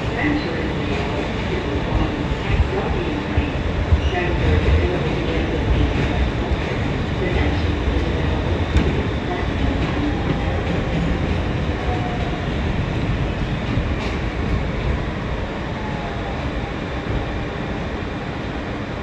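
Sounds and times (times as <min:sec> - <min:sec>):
subway train wheels rumbling: 0:00.0 - 0:19.0.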